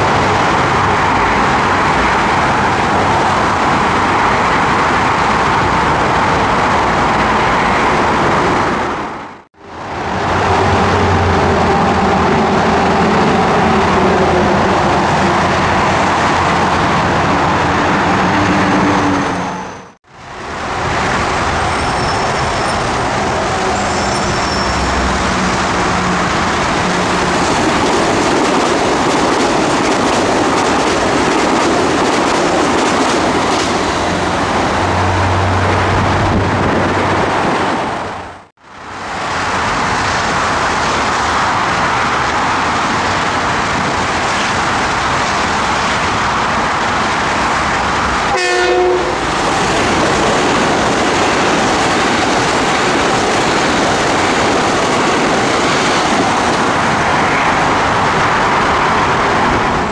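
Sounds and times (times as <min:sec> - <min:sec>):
train wheels rolling and clattering: 0:20.6 - 0:38.4, 0:49.2 - 0:59.9
train horn blast: 0:48.3 - 0:49.3.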